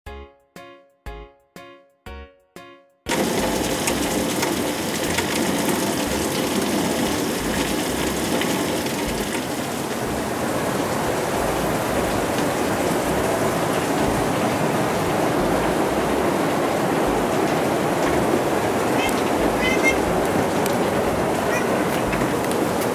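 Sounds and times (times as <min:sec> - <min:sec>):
heavy rain: 0:03.1 - 0:22.9.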